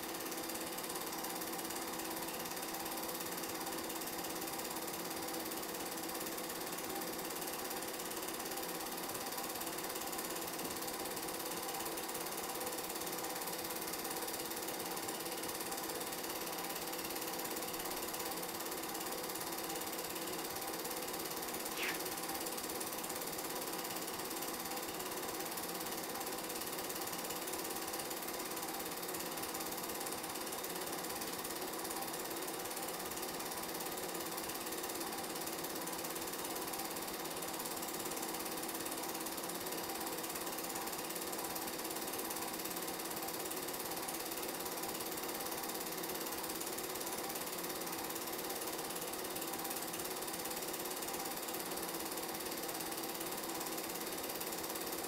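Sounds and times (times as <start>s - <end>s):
film projector whir and clatter: 0.0s - 55.0s.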